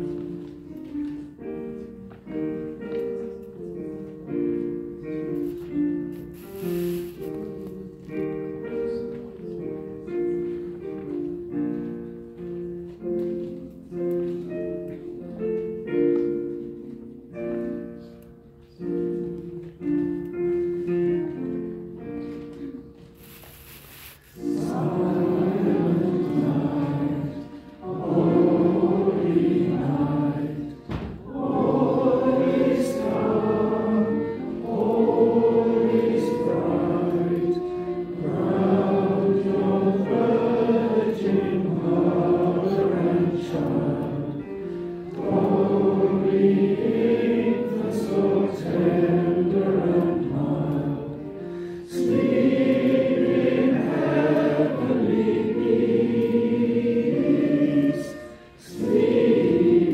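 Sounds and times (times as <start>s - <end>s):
group singing a carol: 24.3s - 59.9s.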